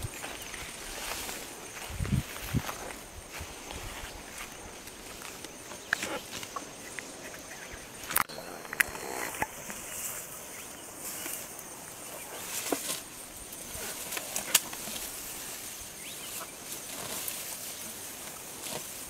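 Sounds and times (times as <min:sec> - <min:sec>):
rustling and snapping vegetation: 0:00.0 - 0:07.3, 0:12.3 - 0:19.0.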